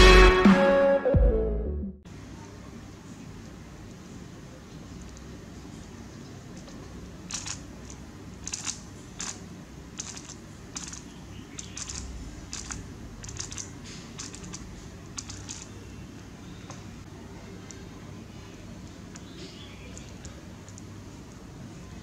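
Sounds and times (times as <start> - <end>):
puzzle cube layers clicking: 7.2 - 9.4, 10.0 - 15.8, 19.9 - 20.9.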